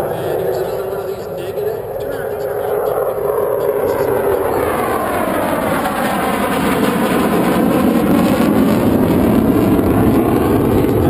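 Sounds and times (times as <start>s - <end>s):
fighter jet engine rushing: 0.0s - 11.0s.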